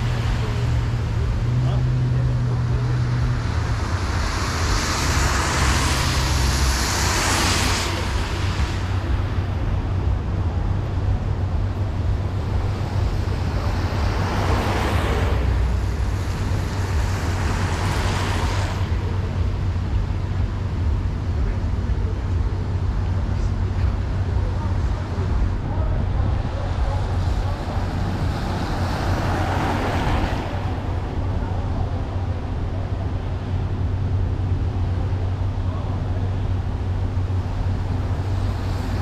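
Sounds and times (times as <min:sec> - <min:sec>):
car engine and road hum: 0:00.0 - 0:39.0
tyre hiss on wet road: 0:03.9 - 0:09.0.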